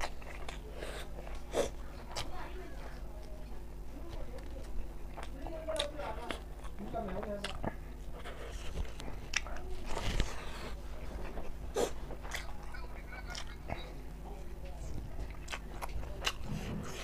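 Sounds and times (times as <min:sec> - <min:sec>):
wet chewing and lip-smacking: 0:00.0 - 0:14.2, 0:14.8 - 0:17.0.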